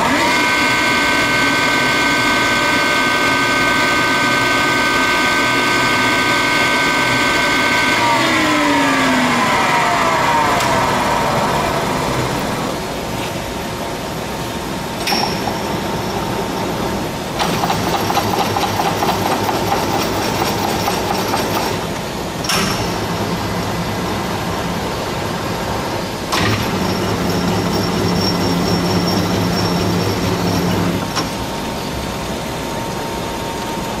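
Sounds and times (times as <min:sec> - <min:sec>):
lathe spindle whine: 0:00.0 - 0:13.8, 0:23.1 - 0:34.0
lathe gearing running: 0:13.7 - 0:34.0.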